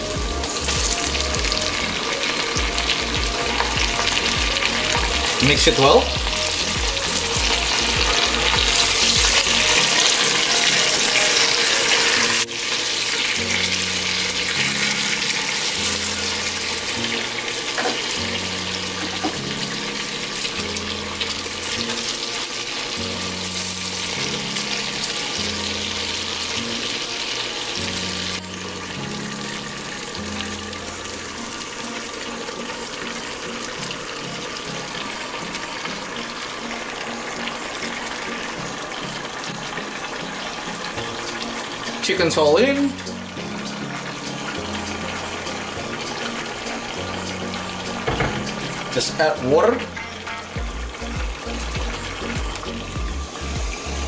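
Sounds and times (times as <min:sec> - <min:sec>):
background music with bass line: 0:00.0 - 0:12.6, 0:42.2 - 0:54.0
chicken sizzling in hot oil: 0:00.0 - 0:54.0.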